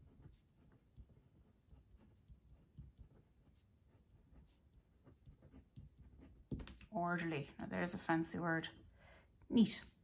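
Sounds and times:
pen scratching on paper: 0.0 - 7.2.

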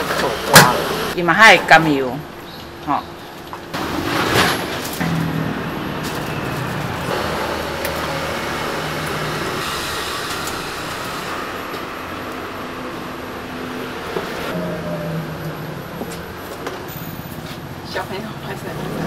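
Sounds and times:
low hum: 11.2 - 17.4.

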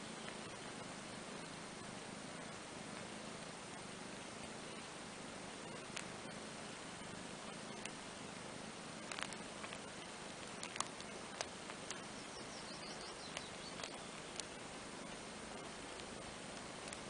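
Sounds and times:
steady hiss: 0.0 - 17.0
wet licking clicks: 5.6 - 6.4, 7.4 - 8.0, 9.0 - 17.0.

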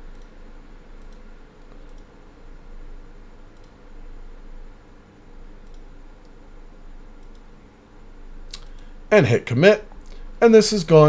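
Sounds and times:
low room hum: 0.0 - 11.0
computer mouse clicking: 0.1 - 0.4, 1.0 - 2.1, 3.5 - 3.8, 5.6 - 6.4, 7.2 - 7.6, 8.5 - 8.9.

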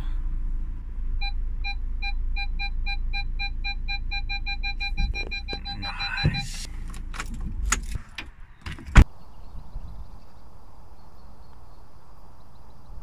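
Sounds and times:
low engine rumble: 0.0 - 13.0
parking sensor beeping: 1.2 - 7.9.

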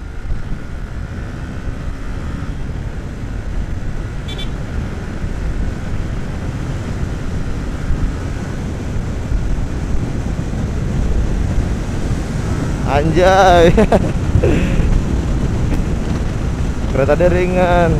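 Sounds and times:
motorcycle engine drone: 0.0 - 17.9
wind buffeting on microphone: 0.0 - 17.9
short high-pitched horn beep: 4.3 - 4.6.

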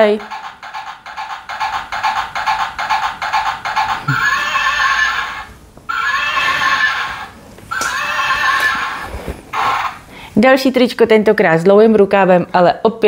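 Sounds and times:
galloping hooves clip-clop: 0.0 - 5.4
horse whinnying: 3.6 - 10.0.

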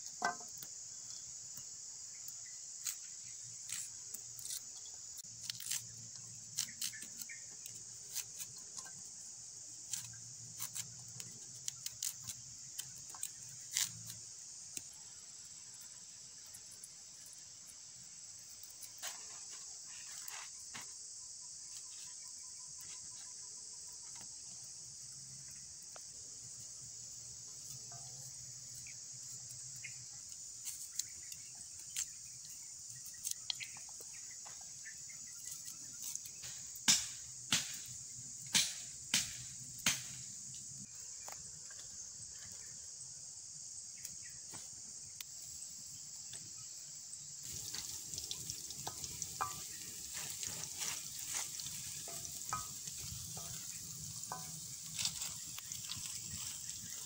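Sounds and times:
insects chirring: 0.0 - 57.0.

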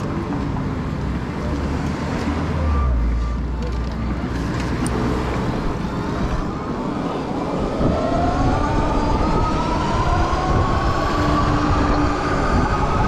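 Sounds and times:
wind rumble on microphone: 4.4 - 13.0.

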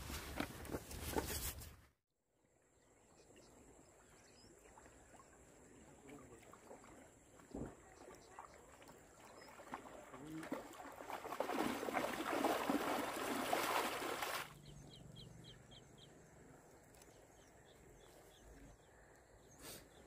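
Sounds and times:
water splashing as man wades: 3.6 - 14.6.

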